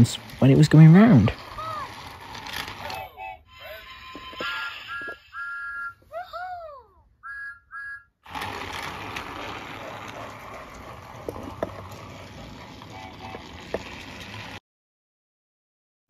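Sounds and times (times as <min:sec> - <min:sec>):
toy train motor whirring: 0:00.0 - 0:06.5, 0:07.2 - 0:14.6
toy train electronic whistle: 0:01.5 - 0:06.1, 0:07.2 - 0:08.3.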